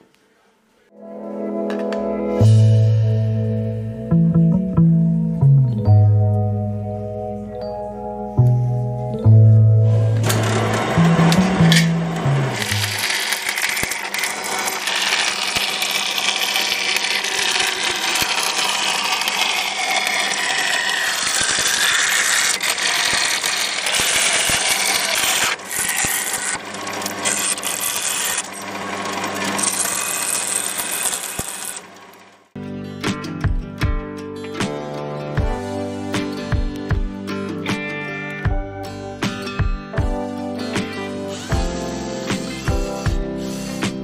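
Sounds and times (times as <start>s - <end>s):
power tool scraping workpiece: 9.8s - 32.4s, 40.7s - 44.0s.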